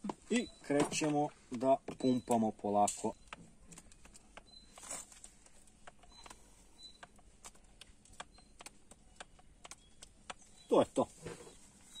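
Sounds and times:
grease gun clicks: 0:05.3 - 0:10.6.

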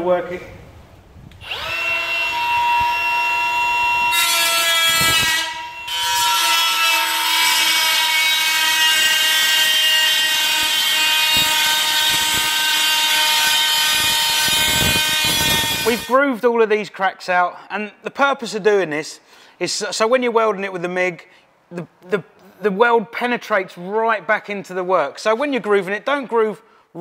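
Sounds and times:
die grinder whining: 0:01.4 - 0:16.1
burr grinding sheet steel: 0:01.4 - 0:16.2.

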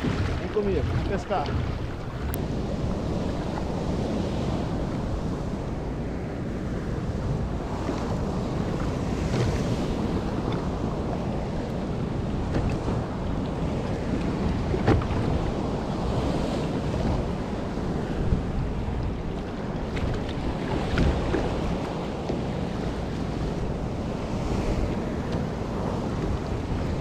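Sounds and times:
waves washing: 0:00.0 - 0:27.0
wind buffeting microphone: 0:00.0 - 0:27.0
knocks against kayak hull: 0:14.7 - 0:15.4, 0:19.9 - 0:22.5.

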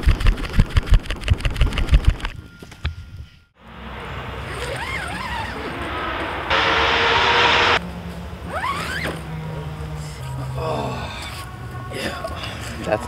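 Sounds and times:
car engines revving and idling: 0:03.6 - 0:10.7
loud hiss: 0:03.7 - 0:07.8.

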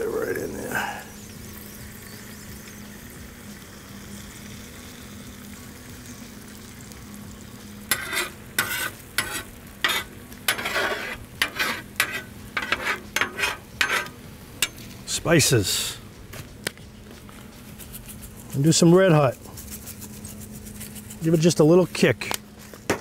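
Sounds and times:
eggs sizzling on griddle: 0:00.0 - 0:16.0, 0:17.1 - 0:23.0
metal spatula scraping griddle: 0:07.8 - 0:14.9.

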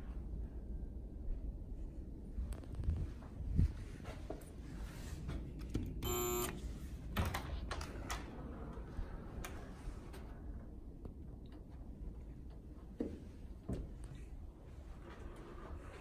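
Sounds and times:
door lock beep: 0:06.0 - 0:06.6.

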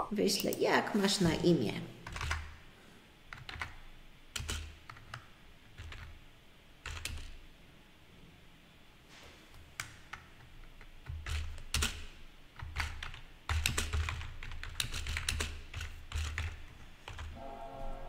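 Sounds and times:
typing on computer keyboard: 0:02.0 - 0:02.5, 0:03.3 - 0:06.2, 0:06.8 - 0:07.4, 0:09.8 - 0:17.3.

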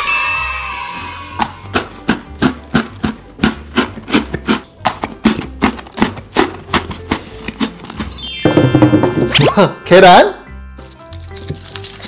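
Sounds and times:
biscuit sticks crunching: 0:02.4 - 0:08.1, 0:10.8 - 0:12.0.

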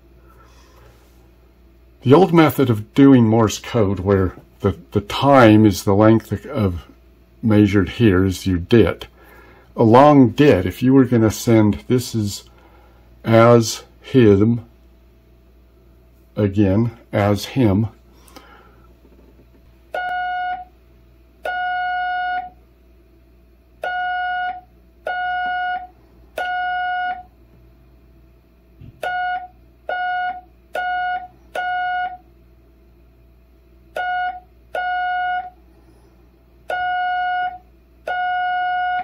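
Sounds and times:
morse code tone: 0:20.0 - 0:20.7, 0:21.4 - 0:22.6, 0:23.8 - 0:27.3, 0:29.0 - 0:32.3, 0:33.9 - 0:35.6, 0:36.7 - 0:39.0.

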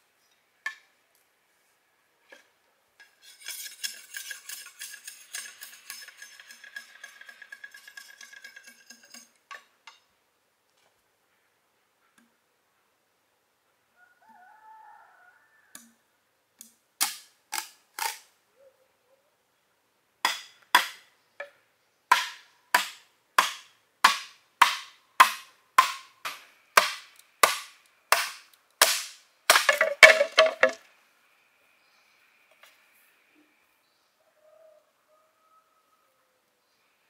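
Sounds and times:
hard strikes on bamboo: 0:20.2 - 0:21.1, 0:22.1 - 0:30.8.

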